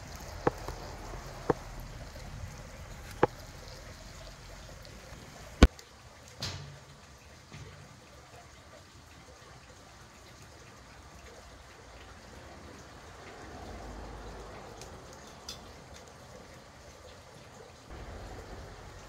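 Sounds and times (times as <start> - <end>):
fire crackling pops: 0.0 - 3.4
campfire hissing: 0.0 - 5.8, 17.9 - 19.0.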